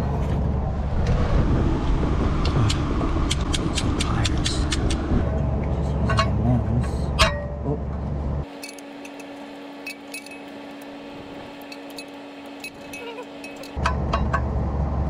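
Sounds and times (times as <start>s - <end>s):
low rumble: 0.0s - 8.5s
metal tools clinking: 5.8s - 6.4s, 8.5s - 14.0s.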